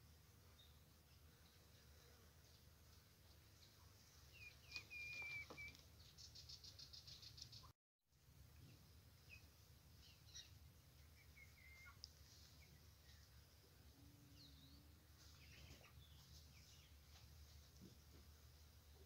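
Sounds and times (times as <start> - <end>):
faint bird chirps and whistles: 4.3 - 7.7, 9.2 - 12.0.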